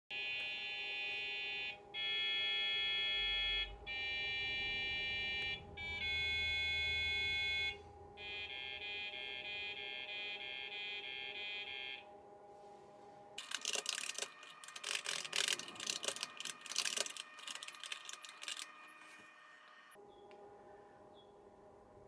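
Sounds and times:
pc speaker beeped tune: 0.2s - 12.0s.

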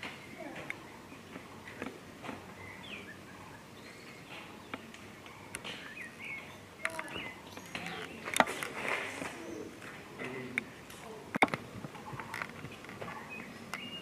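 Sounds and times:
birds chirping: 0.0s - 14.0s
outdoor background noise: 0.0s - 14.0s.

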